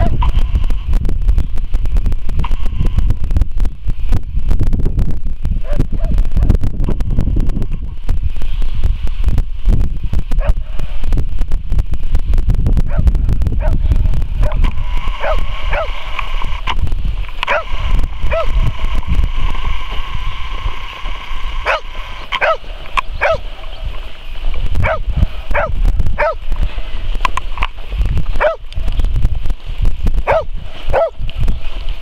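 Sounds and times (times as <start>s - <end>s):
low rumble: 0.0s - 32.0s
dog yelping barks: 15.2s - 16.0s, 17.5s - 17.7s, 18.3s - 18.5s, 21.6s - 23.5s, 24.8s - 26.4s, 28.4s - 28.6s, 30.3s - 31.2s.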